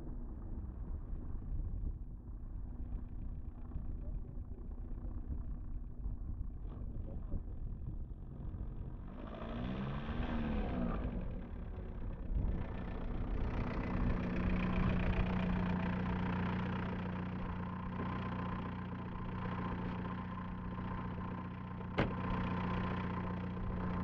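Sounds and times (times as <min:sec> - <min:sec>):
car rolling up and stopping: 0:09.0 - 0:24.0
car engine idling: 0:11.1 - 0:24.0.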